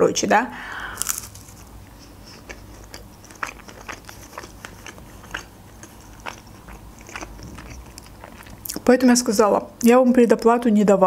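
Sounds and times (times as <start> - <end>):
crunchy chewing: 0.9 - 8.9.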